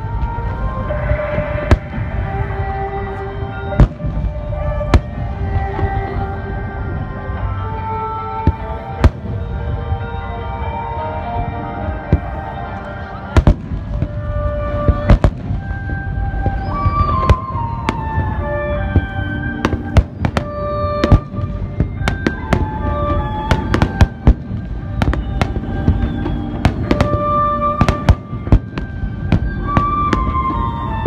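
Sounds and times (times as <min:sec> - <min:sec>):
fireworks bursting: 0:00.0 - 0:31.0
music with held notes: 0:00.0 - 0:31.0.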